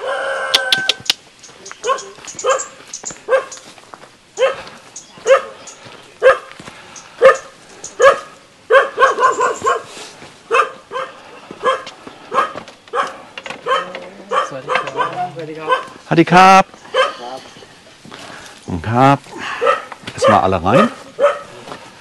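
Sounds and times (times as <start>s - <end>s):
dog barking: 1.8s - 3.6s, 4.4s - 5.6s, 6.2s - 6.6s, 7.2s - 16.0s, 16.9s - 17.4s, 19.5s - 21.6s.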